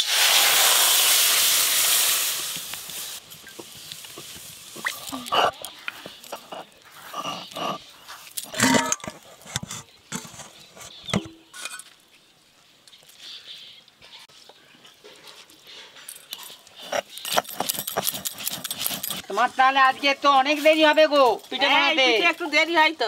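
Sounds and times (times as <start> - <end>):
stone roller scraping stone: 3.6 - 11.8, 16.8 - 19.2.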